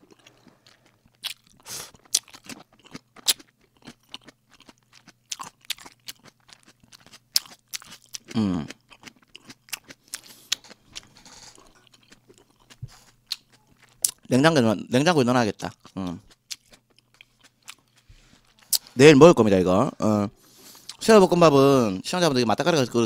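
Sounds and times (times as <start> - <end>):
man chewing crunchy food: 0.0 - 14.4, 15.6 - 19.0, 20.4 - 21.0
man humming: 8.3 - 8.7.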